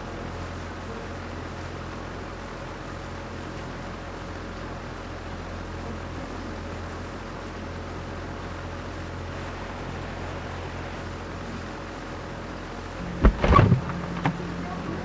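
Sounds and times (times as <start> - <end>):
low hum and hiss: 0.0 - 15.0
loud clatter of impacts: 13.0 - 14.4.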